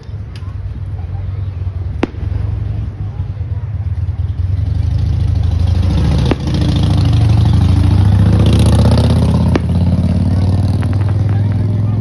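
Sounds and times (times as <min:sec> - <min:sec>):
engine humming: 0:00.0 - 0:12.0
firework cracks: 0:01.9 - 0:03.0, 0:06.0 - 0:06.8, 0:09.4 - 0:11.6.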